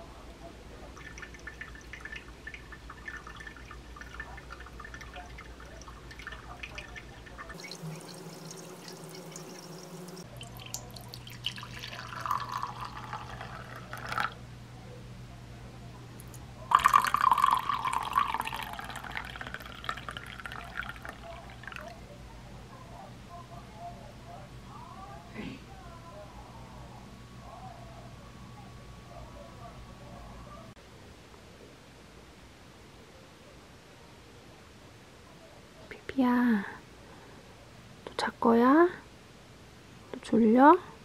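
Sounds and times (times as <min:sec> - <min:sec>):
coffee pouring into mugs: 0:01.0 - 0:14.4, 0:16.2 - 0:22.0
hot water trickling onto grounds: 0:01.0 - 0:14.4, 0:16.7 - 0:21.9.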